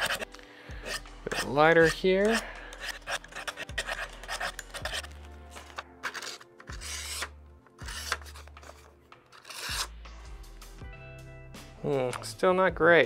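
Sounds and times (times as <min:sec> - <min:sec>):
knife slicing paper: 0:00.0 - 0:01.6, 0:02.3 - 0:09.9
knife on sharpening rods: 0:00.0 - 0:09.9
background music: 0:00.0 - 0:13.0.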